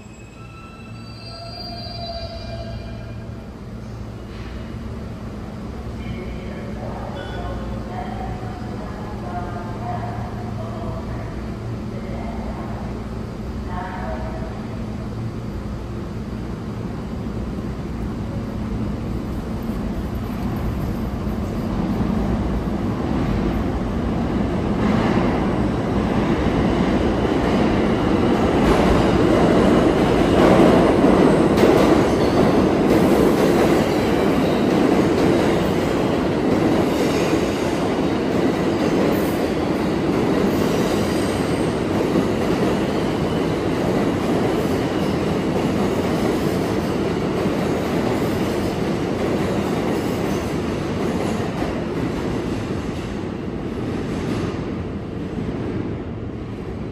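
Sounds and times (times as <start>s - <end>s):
faint high squeal: 0.0s - 3.3s
subway train rumble: 0.0s - 56.9s.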